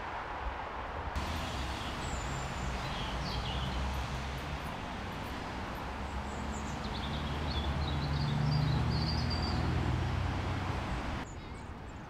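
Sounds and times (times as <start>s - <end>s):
steady rushing noise: 0.0s - 8.1s
low drone: 1.2s - 8.2s
small birds chirping: 1.2s - 12.0s.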